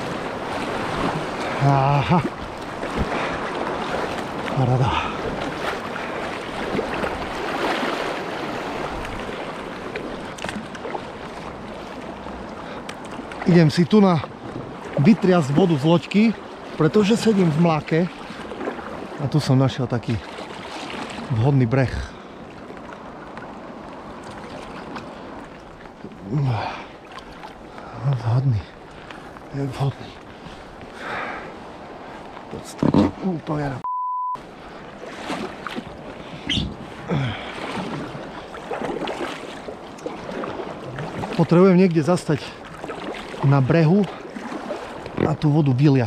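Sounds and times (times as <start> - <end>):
river water rushing and splashing: 0.0 - 33.8, 34.4 - 46.0
man speaking: 32.6 - 33.9, 43.4 - 44.1, 45.2 - 46.0.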